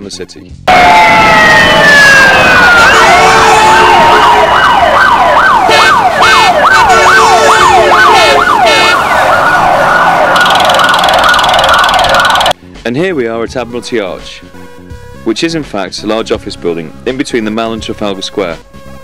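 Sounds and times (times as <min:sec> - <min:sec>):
emergency siren: 0:00.7 - 0:12.6.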